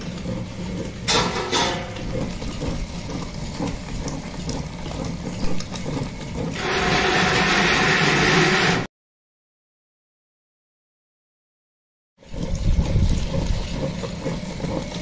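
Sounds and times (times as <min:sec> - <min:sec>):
wet grinder rumbling: 0:00.0 - 0:08.9, 0:12.2 - 0:15.0.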